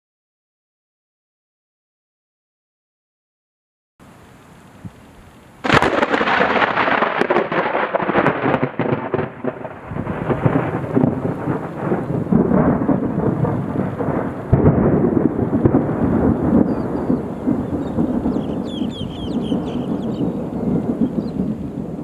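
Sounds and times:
thunder crackling and rumbling: 5.6 - 22.0.

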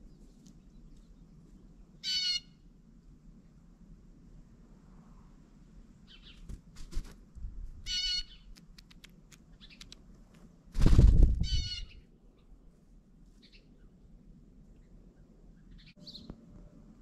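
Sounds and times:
harsh bird calls: 2.0 - 2.5, 7.8 - 8.6, 11.4 - 12.1
bird wingbeats: 6.3 - 7.3, 8.5 - 11.8.

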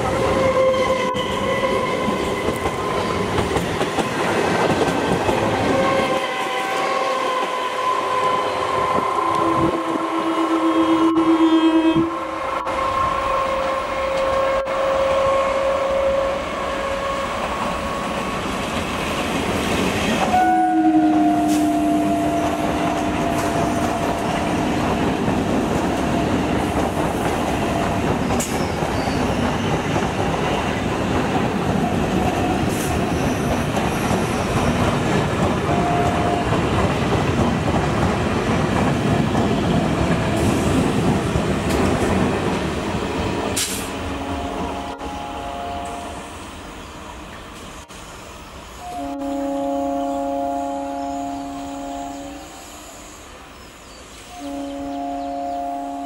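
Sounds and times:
train wheels rumbling on rails: 0.0 - 56.0
train horn blast: 0.2 - 2.6, 5.6 - 17.5, 20.2 - 24.6, 35.7 - 36.5, 43.6 - 46.3, 48.8 - 53.0, 54.3 - 56.0.

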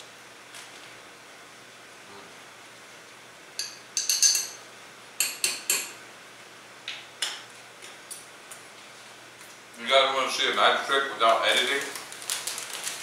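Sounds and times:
knife clinking against glass: 3.6 - 4.6.

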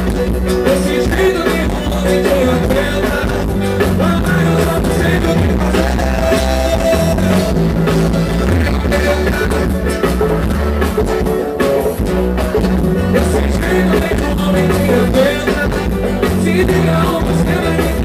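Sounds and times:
live band music: 0.0 - 18.0
person singing: 0.1 - 7.6, 8.5 - 10.2, 13.0 - 18.0.

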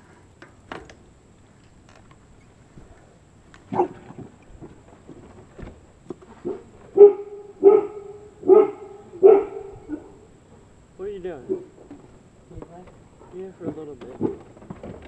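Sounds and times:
dog barking: 3.7 - 4.0, 6.4 - 10.2, 11.5 - 11.7.

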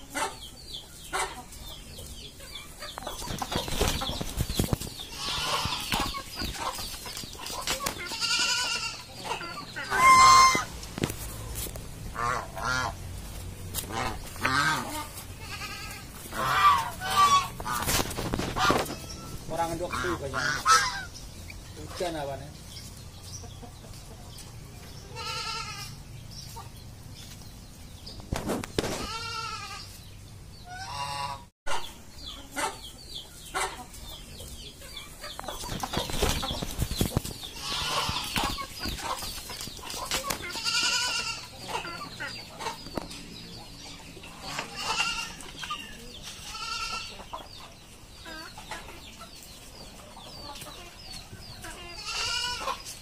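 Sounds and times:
geese honking: 0.0 - 1.6, 5.1 - 6.8, 7.4 - 11.1, 12.1 - 21.2, 30.6 - 32.9, 37.5 - 39.2, 39.9 - 42.9, 44.3 - 45.8
chickens clucking: 0.0 - 53.0.

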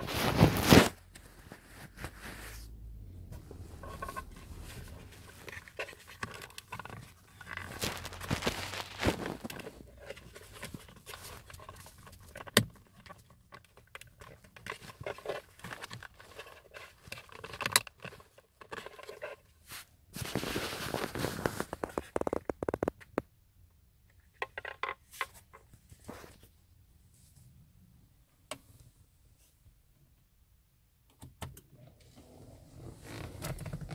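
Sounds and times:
plastic scraping and rustling: 0.0 - 23.2, 32.1 - 33.9.

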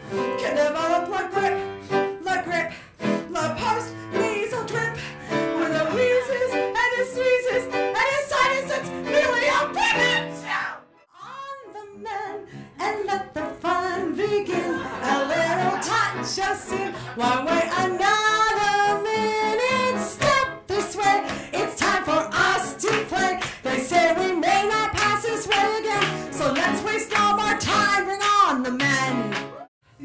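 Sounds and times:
woman singing into a microphone: 0.2 - 1.6, 2.2 - 10.4, 11.1 - 29.3
instrumental accompaniment: 14.2 - 29.7.

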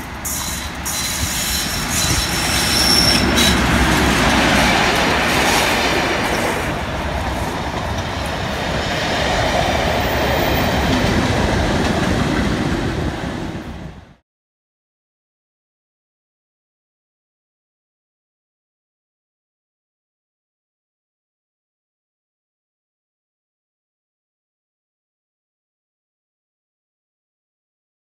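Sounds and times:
high wheel squeal: 0.0 - 6.6, 9.8 - 11.1
diesel locomotive engine: 0.0 - 14.2
train wheels on rails: 0.0 - 14.2.

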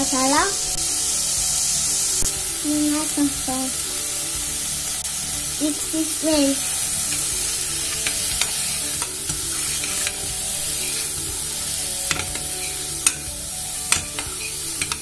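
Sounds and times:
food sizzling in a pan: 0.0 - 15.0
spoon clicking against pan: 13.9 - 15.0.

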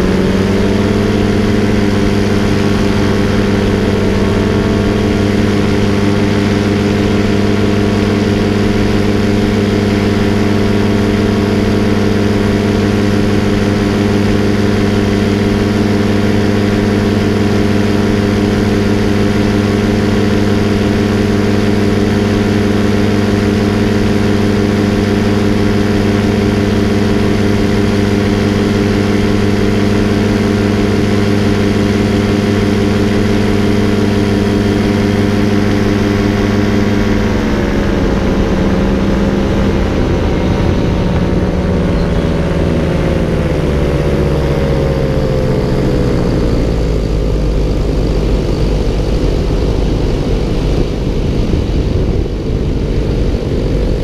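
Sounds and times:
paramotor engine drone: 0.0 - 54.0.

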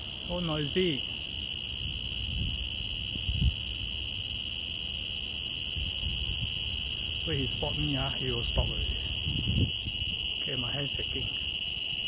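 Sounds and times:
cicada buzzing: 0.0 - 12.0.

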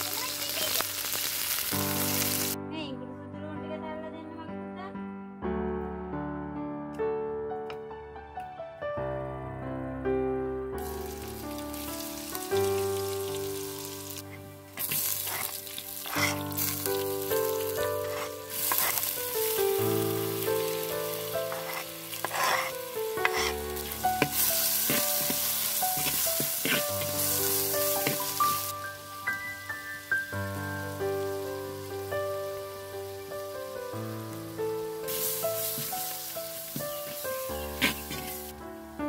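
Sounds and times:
oil sizzling in a pot: 0.0 - 2.6, 10.8 - 38.6
piano music: 0.0 - 39.0
wooden spoon stirring: 14.8 - 28.7, 35.2 - 38.5.

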